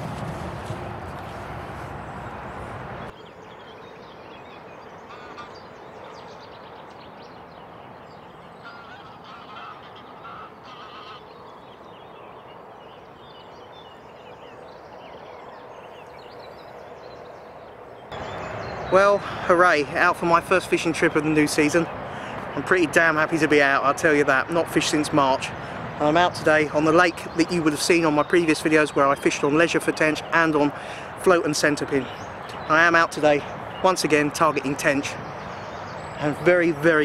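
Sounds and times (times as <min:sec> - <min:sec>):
birds calling and chirping: 0:00.0 - 0:37.0
distant road traffic hum: 0:00.0 - 0:37.0.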